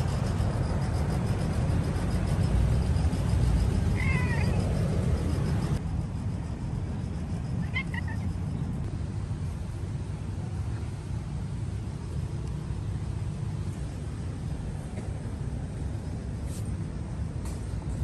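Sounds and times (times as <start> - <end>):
steady low rumble: 0.0 - 18.0
kitten meowing: 4.0 - 4.6.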